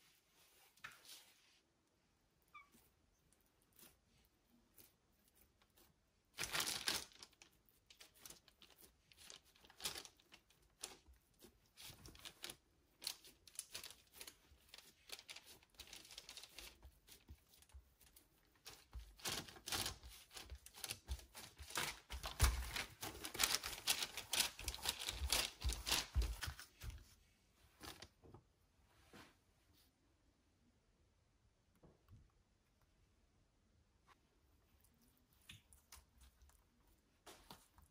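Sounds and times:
crinkling and tearing by hand: 3.6 - 26.9.

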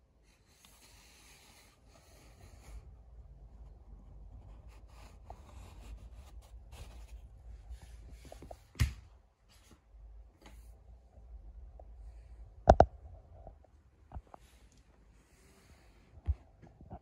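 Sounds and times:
rubbing and handling noises: 0.3 - 8.8.

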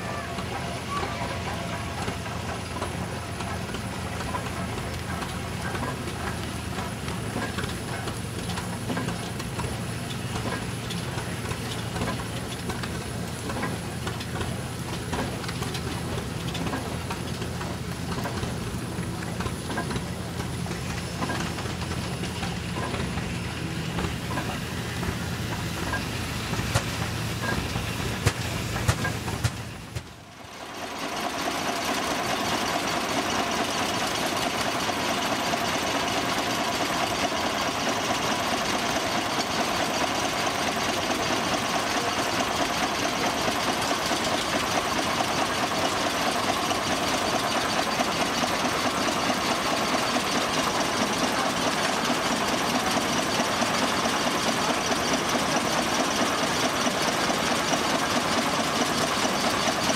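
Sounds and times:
steam hissing: 0.0 - 59.9
steam traction engine running: 0.0 - 59.9
sharp engine knocks: 26.6 - 30.2.

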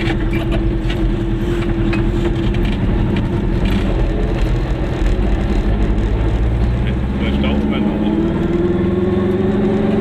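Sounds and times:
small car engine running: 0.0 - 10.0.

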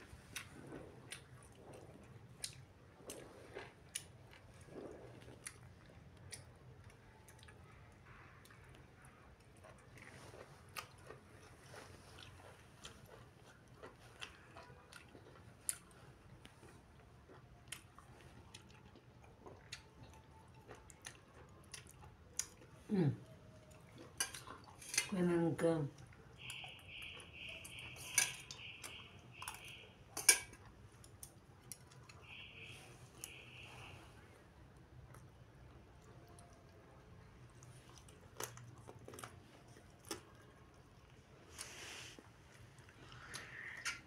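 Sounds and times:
chewing and biting: 0.0 - 22.9, 23.5 - 25.1, 34.9 - 44.0.

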